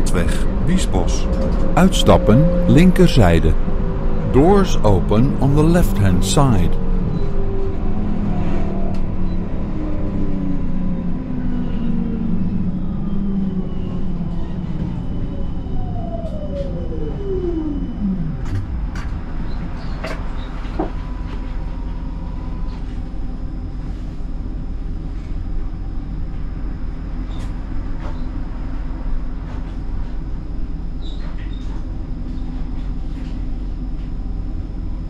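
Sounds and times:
falling whine: 0.0 - 24.0
tram running gear rumble: 0.0 - 35.0.

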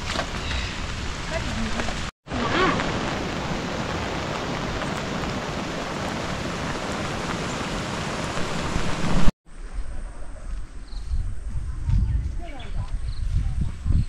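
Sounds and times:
heavy rain falling: 0.0 - 9.3.

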